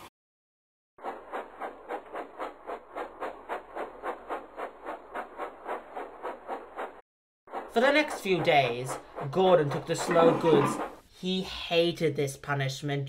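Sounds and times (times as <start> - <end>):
steam locomotive chuffing: 1.0 - 11.0.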